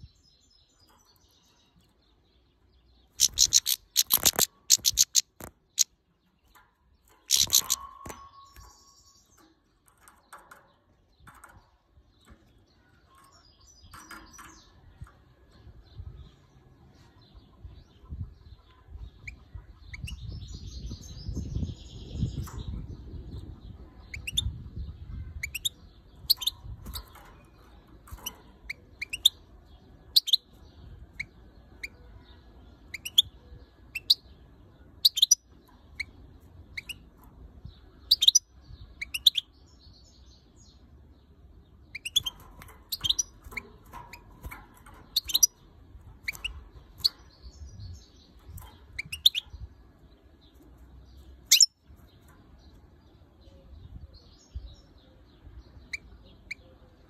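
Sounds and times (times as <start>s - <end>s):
goldfinch high-pitched calls: 3.1s - 5.9s, 7.3s - 8.8s, 45.1s - 45.5s, 51.5s - 51.7s.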